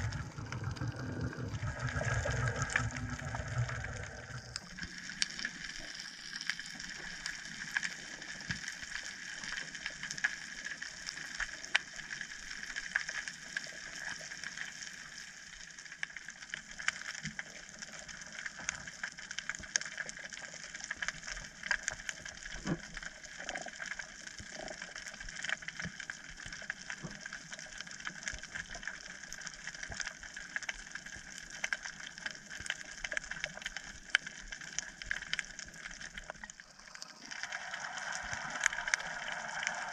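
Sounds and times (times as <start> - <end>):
underwater hiss: 0.0 - 7.0, 36.8 - 39.9.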